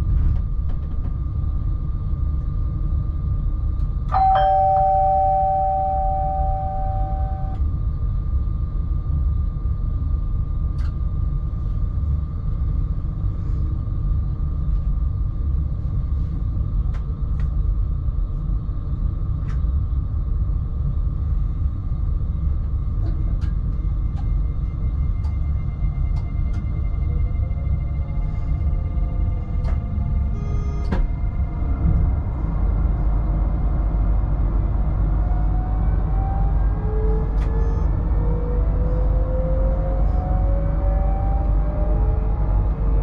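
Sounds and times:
train running with whine: 0:00.0 - 0:43.0
two-note tone: 0:04.2 - 0:07.6.

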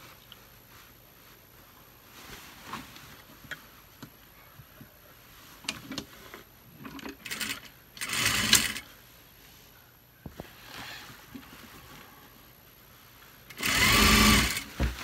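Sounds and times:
fabric rustling: 0:00.0 - 0:06.8
sewing machine stitching: 0:07.0 - 0:08.8, 0:13.5 - 0:14.7.

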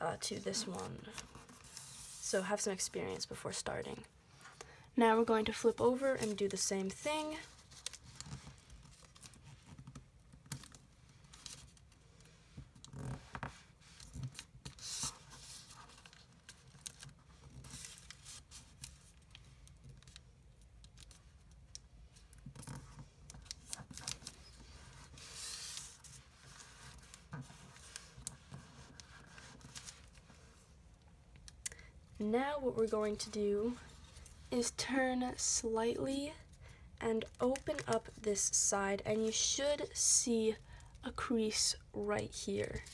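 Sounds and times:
paper rustling and crinkling: 0:06.2 - 0:12.3, 0:13.0 - 0:20.2, 0:20.8 - 0:30.7.

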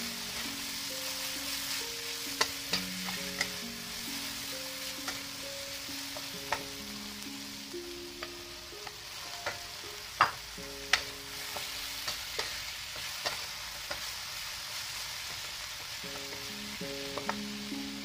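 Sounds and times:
food sizzling in a wok: 0:00.0 - 0:18.0
spatula scraping the pan: 0:10.9 - 0:15.4.

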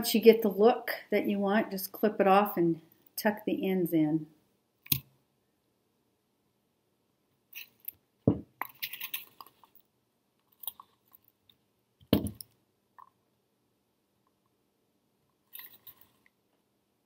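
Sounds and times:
pliers and wire clinking: 0:07.5 - 0:08.0, 0:08.6 - 0:09.8, 0:15.5 - 0:16.3
tools thumping onto table: 0:08.3 - 0:08.7, 0:12.1 - 0:12.5.

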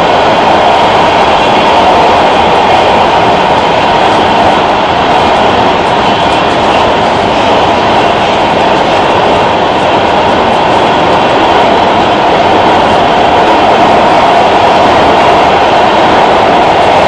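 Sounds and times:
subway train wheels rumbling on rails: 0:00.0 - 0:17.0.

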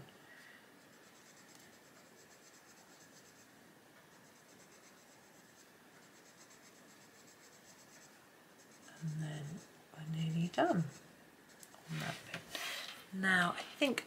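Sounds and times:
pencil scratching on paper: 0:00.8 - 0:12.9.

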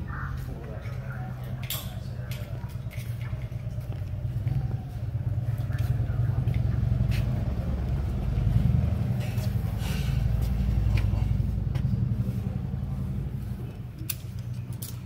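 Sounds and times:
vehicle engine idling: 0:00.0 - 0:15.0
metallic clicks of rope hardware: 0:01.5 - 0:03.4, 0:14.0 - 0:15.0.

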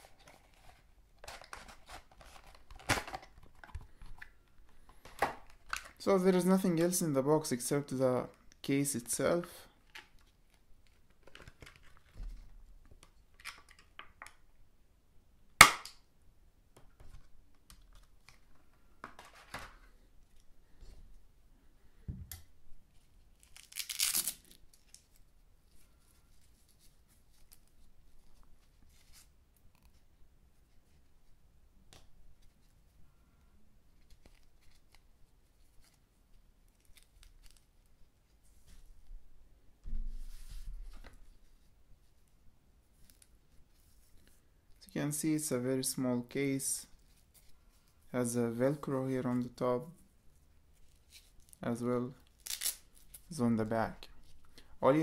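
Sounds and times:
plastic packaging clicks and rustles: 0:00.0 - 0:06.1, 0:09.8 - 0:12.2, 0:12.8 - 0:14.4
sharp plastic snap: 0:15.6 - 0:16.0
velcro tearing open: 0:23.3 - 0:25.1, 0:52.2 - 0:53.3.

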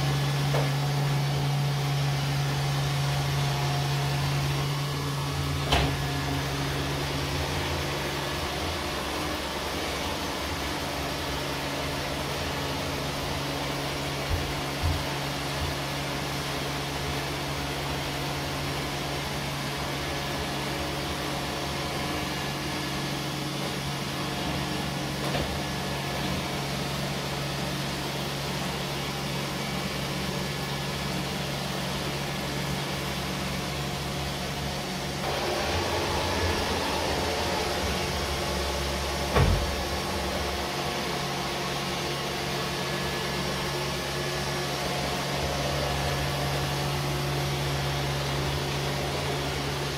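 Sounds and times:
robot vacuum cleaner whirring: 0:31.0 - 0:49.9
knock: 0:39.3 - 0:39.8.

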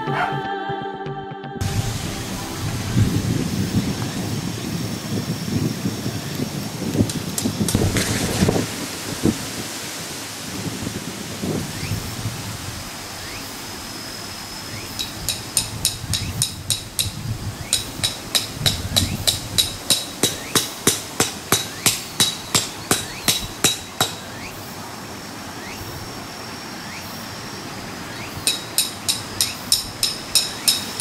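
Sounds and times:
hammer striking metal tent stake: 0:15.0 - 0:24.3, 0:28.5 - 0:31.0.

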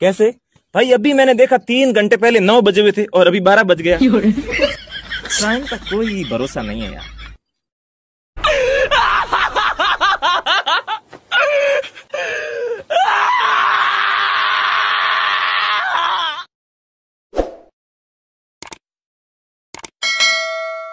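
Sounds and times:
man screaming: 0:08.4 - 0:09.4, 0:12.9 - 0:16.5.

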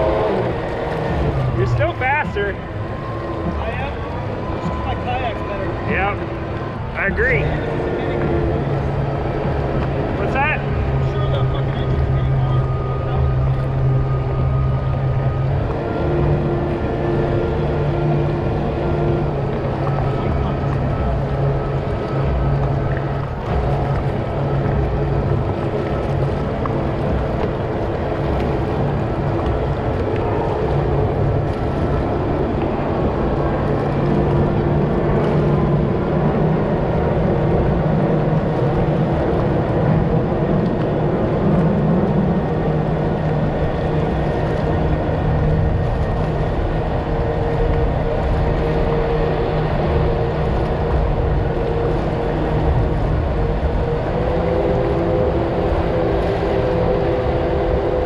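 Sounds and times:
kayak motor running: 0:00.0 - 0:58.0.

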